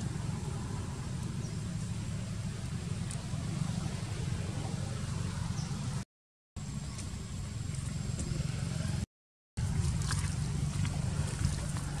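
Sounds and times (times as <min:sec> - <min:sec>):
low rumbling outdoor noise: 0:00.0 - 0:06.0, 0:06.6 - 0:12.0.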